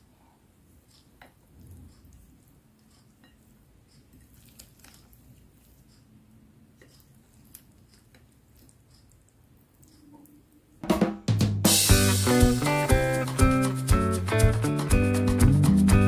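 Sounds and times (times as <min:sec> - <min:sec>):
wet squishing of salad: 0:01.0 - 0:06.0, 0:06.8 - 0:10.5.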